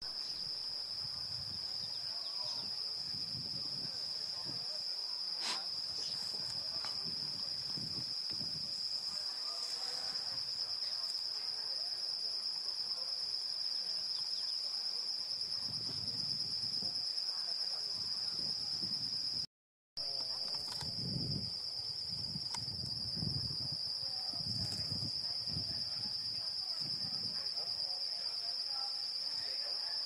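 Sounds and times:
insect trilling: 0.2 - 11.4.

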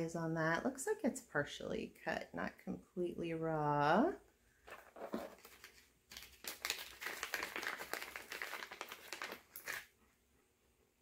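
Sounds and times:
packaging crinkling: 4.7 - 9.9.

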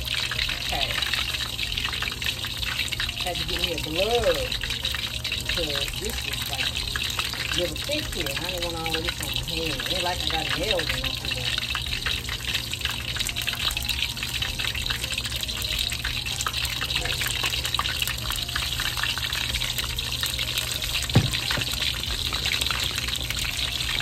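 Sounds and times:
oil sizzling in a wok: 0.0 - 24.0
dull thump: 21.1 - 21.7.

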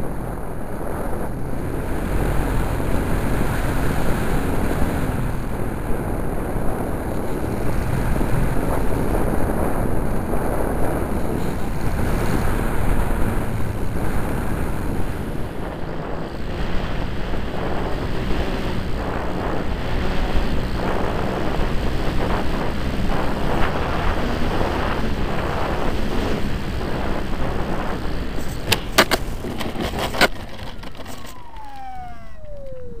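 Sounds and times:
model plane motor and airflow: 0.0 - 33.0
motor winding down whine: 30.7 - 33.0.

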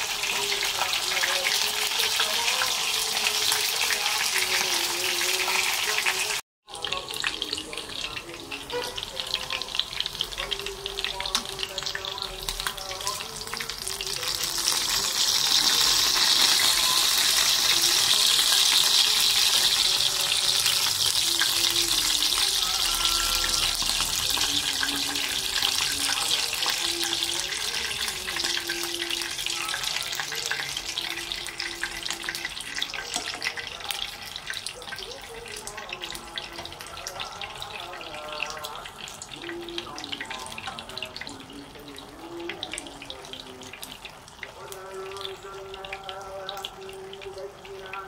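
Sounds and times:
rice simmering and sizzling in pan: 9.1 - 47.8.

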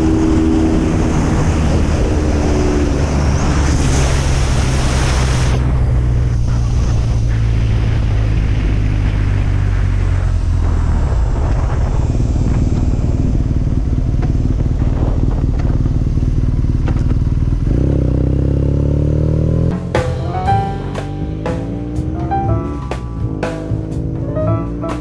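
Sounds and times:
wind rush: 0.0 - 16.0
motorcycle engine running: 11.6 - 25.0
music with drums: 19.7 - 25.0.

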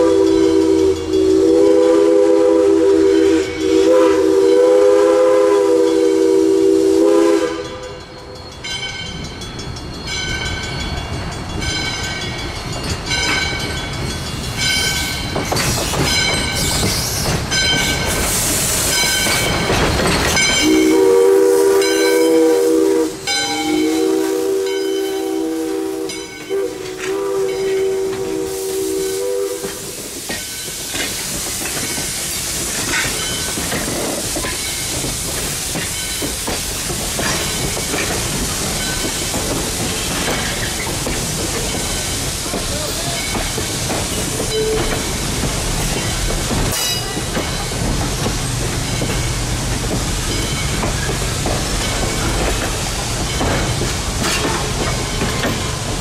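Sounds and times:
locomotive bell ringing: 0.0 - 2.0, 3.0 - 4.8, 5.8 - 6.6, 7.5 - 16.9, 17.5 - 18.2, 18.8 - 29.4, 42.8 - 45.2, 45.9 - 47.8, 48.7 - 52.5
steam whistle chord: 0.0 - 8.1, 20.6 - 29.9
steam hissing: 13.6 - 56.0.

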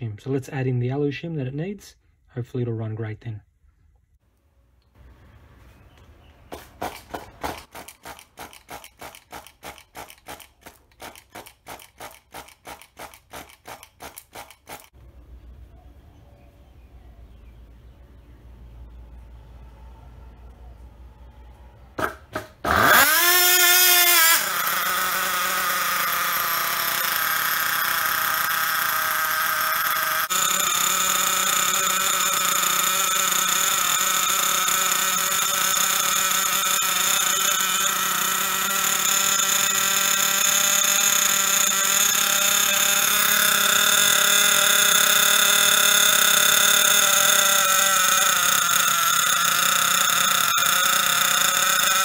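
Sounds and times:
starter attempts: 6.4 - 15.0, 22.0 - 52.0
nitro engine revving and idling: 22.6 - 52.0.

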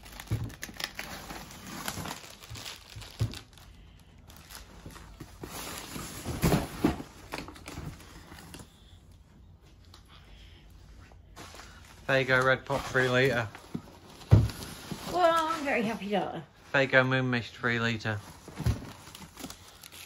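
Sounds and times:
cardboard and plastic crinkling: 0.0 - 8.8, 11.4 - 16.3, 18.0 - 20.0.

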